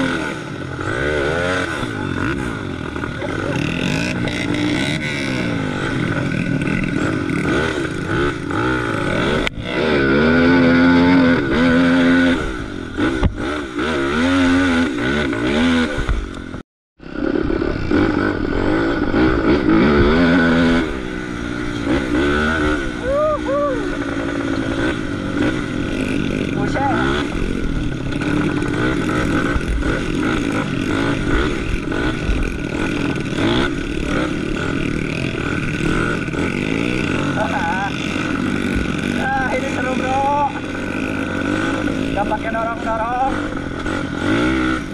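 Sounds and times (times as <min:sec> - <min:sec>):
dirt bike engine revving: 0:00.0 - 0:44.9.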